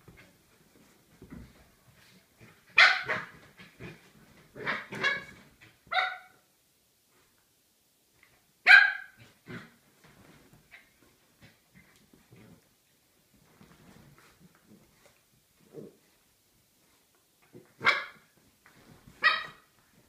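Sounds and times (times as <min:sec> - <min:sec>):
small dog barking: 0:02.8 - 0:03.4, 0:05.9 - 0:06.4, 0:08.6 - 0:09.2, 0:17.8 - 0:18.2, 0:19.2 - 0:19.6.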